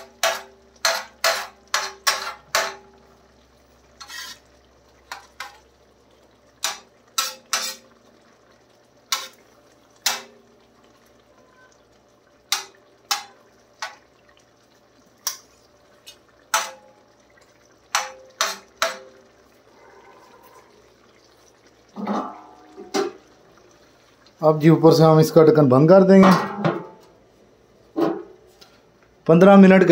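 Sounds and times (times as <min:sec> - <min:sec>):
metal spatula clanking on pan: 0:00.0 - 0:03.0, 0:04.0 - 0:04.5, 0:05.1 - 0:05.7, 0:06.6 - 0:07.9, 0:09.1 - 0:09.4, 0:10.0 - 0:10.4, 0:12.5 - 0:14.1, 0:16.1 - 0:17.0, 0:17.9 - 0:19.2, 0:22.0 - 0:23.2, 0:26.2 - 0:27.0.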